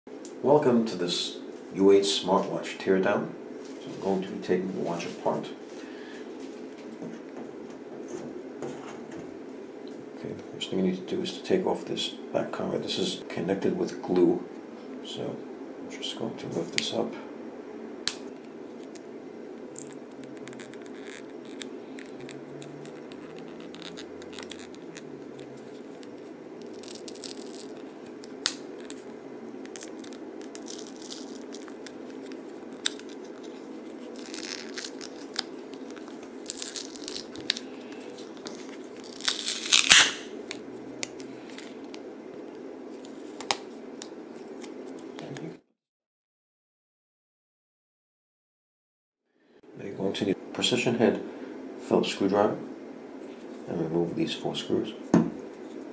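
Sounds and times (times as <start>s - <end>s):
steady low hum: 0.1s - 45.7s, 49.3s - 55.9s
adhesive tearing crackle: 19.7s - 42.0s.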